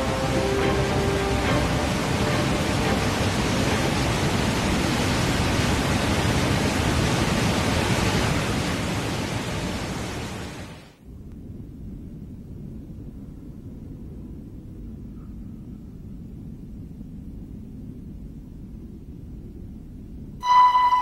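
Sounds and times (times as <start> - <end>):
waterfall rushing: 0.0 - 10.9.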